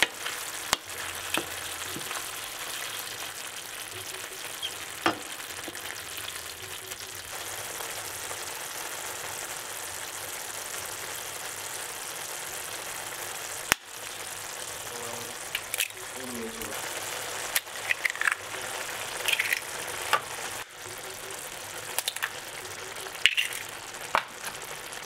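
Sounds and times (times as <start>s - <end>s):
meat and eggs sizzling in a pan: 0.0s - 25.0s.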